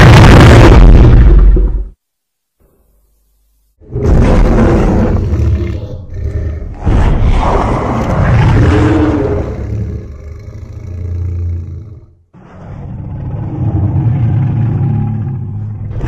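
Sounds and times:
monster roar: 0:03.9 - 0:16.0.

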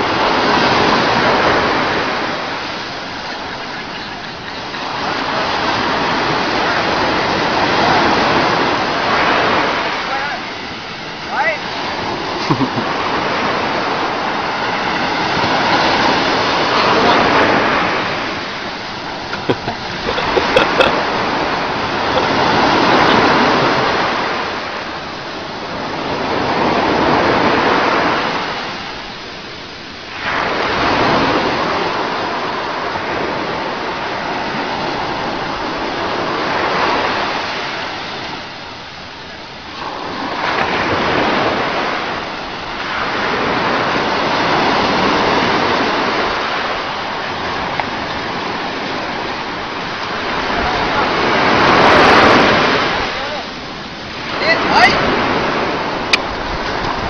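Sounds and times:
water splashing: 0:00.0 - 0:25.4
ocean surf breaking: 0:00.0 - 0:57.0.

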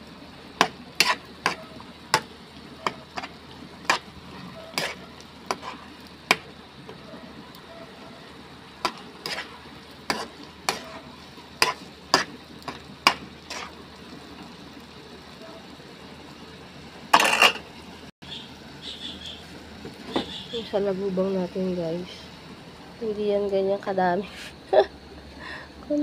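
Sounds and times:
low sizzle of simmering sauce: 0:00.0 - 0:26.0
metal spoon scraping frying pan: 0:00.6 - 0:06.4, 0:08.8 - 0:13.8, 0:17.1 - 0:17.6.

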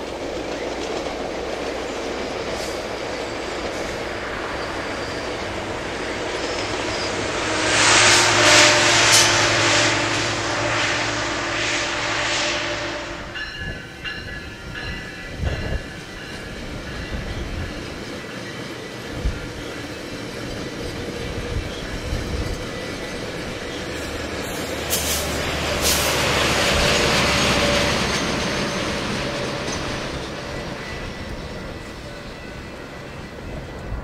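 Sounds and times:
train passing: 0:00.0 - 0:34.0
high ringing tones: 0:12.7 - 0:18.6.

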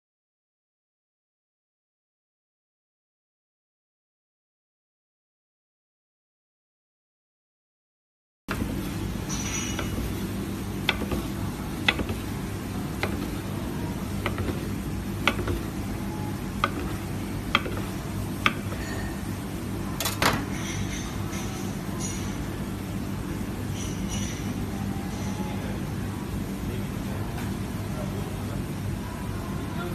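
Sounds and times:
steady low hum: 0:08.5 - 0:29.9.

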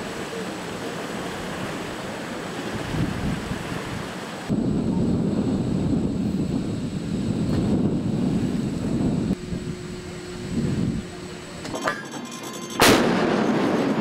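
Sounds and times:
rushing wind and sea: 0:00.0 - 0:11.7
wind buffeting microphone: 0:01.1 - 0:11.6.

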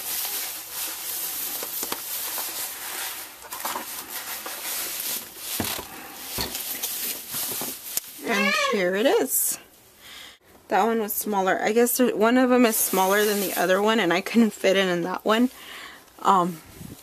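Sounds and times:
plastic bag crinkling: 0:00.0 - 0:09.3, 0:12.7 - 0:14.0.

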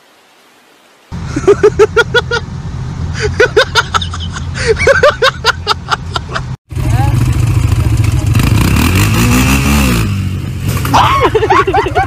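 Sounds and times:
atv engine revving: 0:06.7 - 0:11.7.

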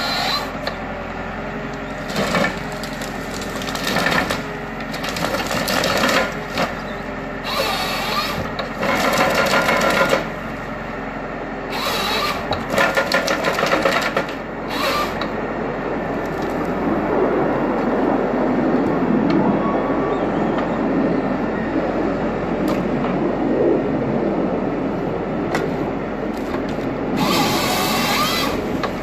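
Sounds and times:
hydraulic crane: 0:00.0 - 0:16.8, 0:24.8 - 0:29.0
diesel engine running: 0:00.0 - 0:29.0
branches crackling and snapping: 0:01.9 - 0:06.8.

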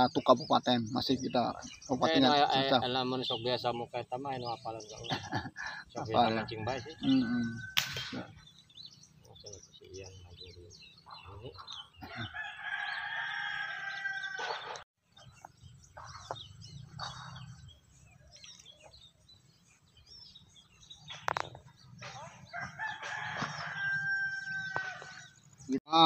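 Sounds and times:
rooster crowing: 0:06.2 - 0:07.9, 0:12.0 - 0:14.8, 0:22.5 - 0:25.4.

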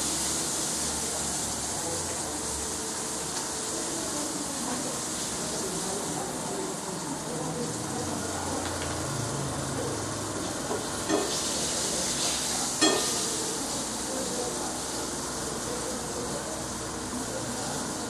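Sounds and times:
food sizzling in a pan: 0:00.0 - 0:18.0
metal utensil clinking on pan: 0:12.8 - 0:13.3.

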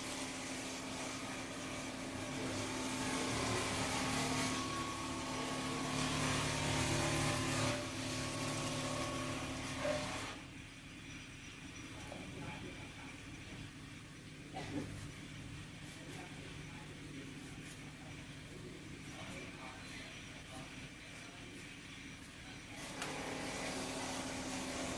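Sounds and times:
motor humming: 0:00.0 - 0:24.9.

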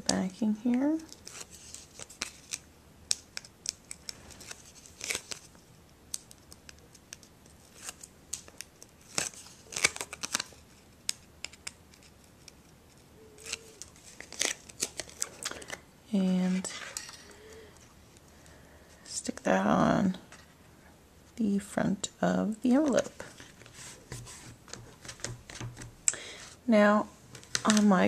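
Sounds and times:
tape backing peeling: 0:01.0 - 0:15.8.

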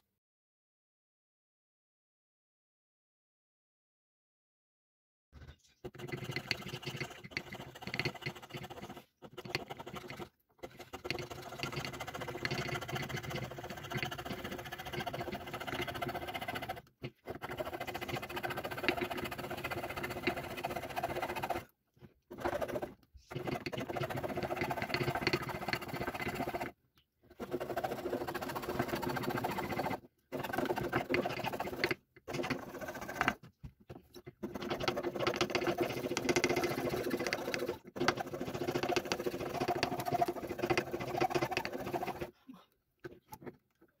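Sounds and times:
hand saw rasping through wood: 0:05.8 - 0:21.7, 0:22.3 - 0:26.7, 0:27.4 - 0:33.4, 0:34.4 - 0:42.3.

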